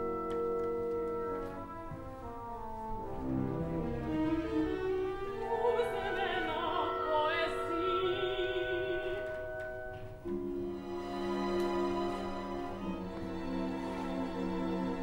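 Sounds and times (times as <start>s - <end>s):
orchestral string chords: 0.0s - 15.0s
solo opera voice with vibrato: 5.3s - 9.9s.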